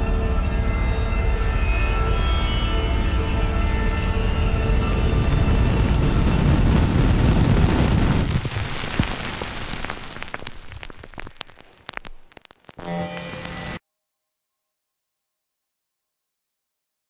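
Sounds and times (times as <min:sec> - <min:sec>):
low hum: 0:00.0 - 0:08.4
dense rushing noise: 0:04.4 - 0:12.1
crackles and clicks: 0:04.4 - 0:13.8.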